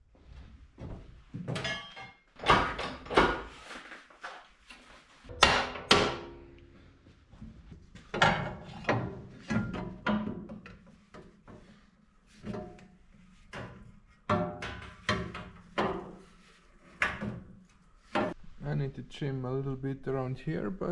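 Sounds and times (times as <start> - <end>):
hammer striking sheet steel: 5.3 - 6.6.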